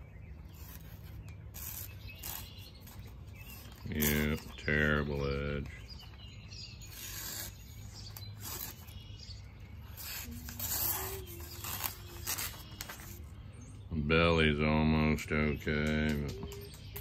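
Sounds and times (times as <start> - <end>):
knife cutting newspaper: 0.3 - 13.3.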